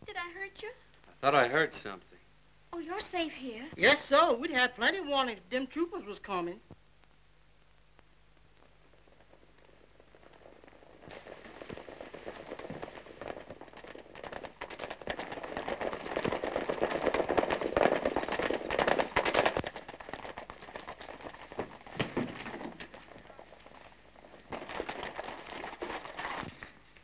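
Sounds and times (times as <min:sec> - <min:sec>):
galloping horse hoofbeats: 0:09.5 - 0:27.0.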